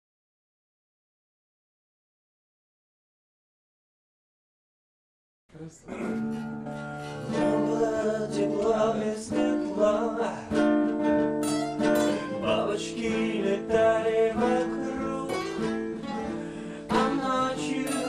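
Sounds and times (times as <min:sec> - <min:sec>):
acoustic guitars playing: 0:05.8 - 0:18.0.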